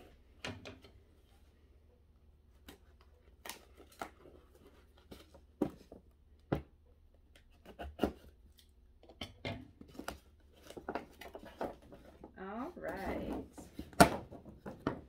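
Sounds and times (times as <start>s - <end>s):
cardboard and plastic rustling: 2.6s - 6.2s, 9.7s - 15.0s.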